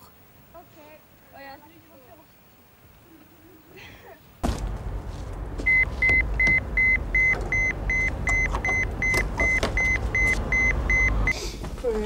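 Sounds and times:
low engine rumble: 0:04.4 - 0:11.4
high electronic beeps: 0:05.7 - 0:11.4.

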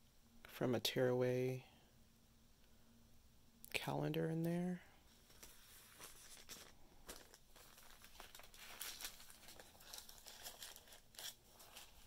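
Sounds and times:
paper bag rustling: 0:05.1 - 0:12.0.

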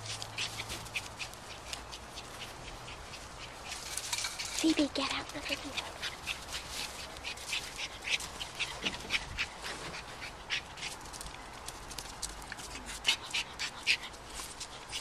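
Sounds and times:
small dog making breathy noises: 0:05.2 - 0:11.2, 0:12.6 - 0:15.0.

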